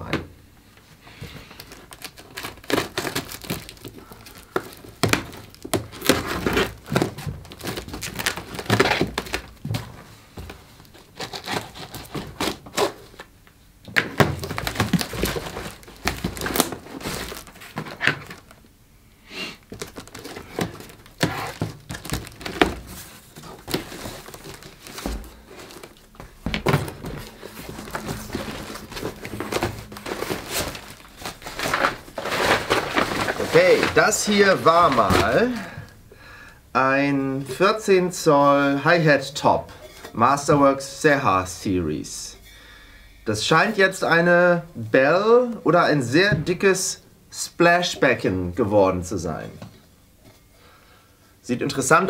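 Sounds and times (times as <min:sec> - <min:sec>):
tape and cardboard ripping: 0:01.5 - 0:09.6, 0:10.9 - 0:13.3, 0:14.0 - 0:18.5, 0:19.7 - 0:35.5
box handling thunks: 0:19.7 - 0:34.1.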